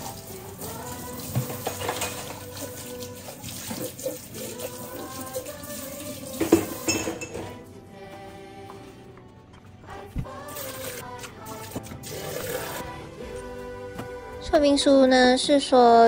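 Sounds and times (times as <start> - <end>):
cup rinsing: 0.0 - 7.6, 10.5 - 12.9.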